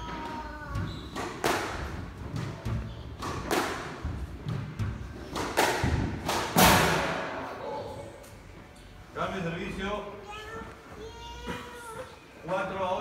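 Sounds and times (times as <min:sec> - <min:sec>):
squash ball hits: 0:00.1 - 0:07.5.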